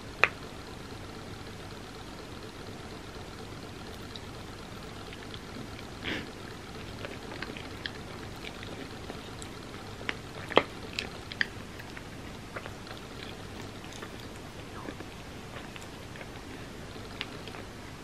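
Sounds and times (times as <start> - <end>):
steady hiss: 0.0 - 18.0
chewing and mouth clicks: 3.8 - 18.0.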